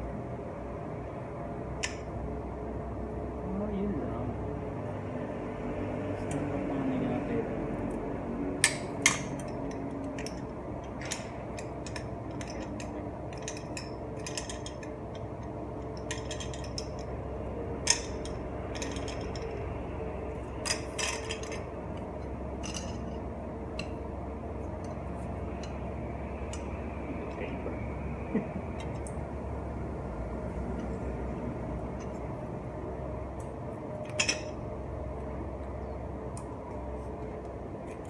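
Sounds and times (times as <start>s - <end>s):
steady low hum: 0.0s - 38.0s
metallic clicks of bicycle parts: 1.8s - 2.1s, 8.6s - 17.1s, 17.8s - 19.6s.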